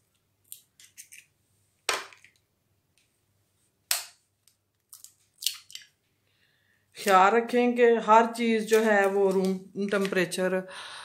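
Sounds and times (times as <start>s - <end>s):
spoon cracking eggshells: 0.4s - 1.3s, 3.9s - 6.0s.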